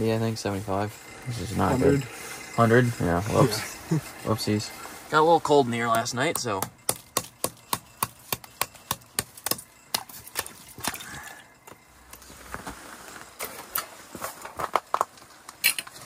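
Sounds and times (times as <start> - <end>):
rustling: 11.8 - 16.0.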